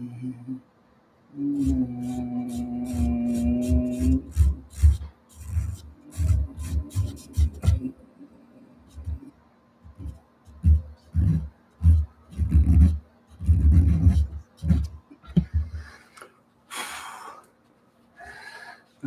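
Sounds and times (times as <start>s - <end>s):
microphone handling thumps and rubs: 3.0s - 7.9s, 9.9s - 15.9s.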